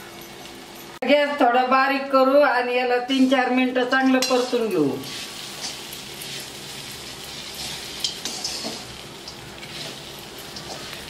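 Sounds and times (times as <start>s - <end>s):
metal spatula scraping a pan: 4.2s - 11.0s
oil frying sizzle: 4.2s - 11.0s.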